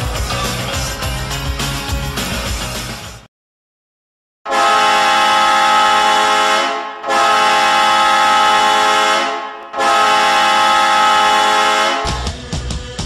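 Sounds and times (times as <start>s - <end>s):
goal horn blasts: 4.5s - 12.3s.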